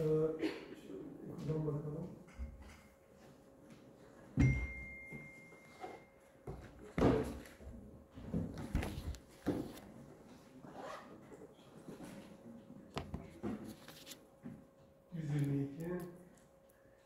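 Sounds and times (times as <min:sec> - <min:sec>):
brief high ring: 0:04.4 - 0:06.2.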